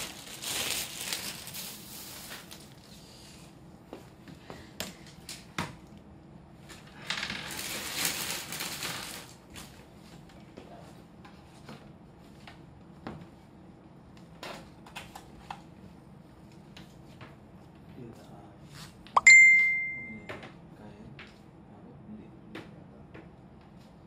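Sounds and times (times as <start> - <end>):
loud high ding: 19.2 - 20.3.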